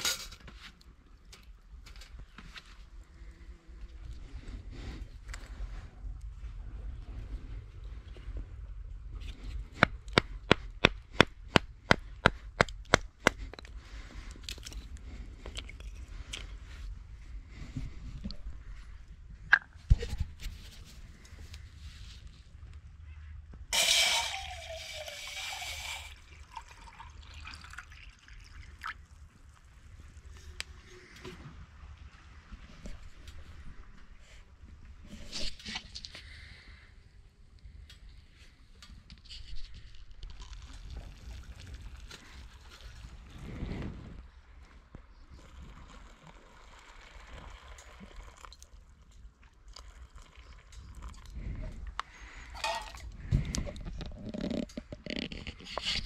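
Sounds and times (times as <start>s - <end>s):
water pouring into metal pot: 23.8s - 29.0s.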